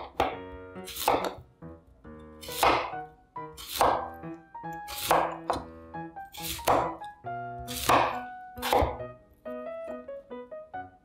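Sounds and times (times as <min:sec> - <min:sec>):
knife cutting on cutting board: 0:00.0 - 0:01.4, 0:02.4 - 0:03.0, 0:03.6 - 0:05.7, 0:06.3 - 0:07.1, 0:07.7 - 0:09.0
light background music: 0:00.0 - 0:11.0.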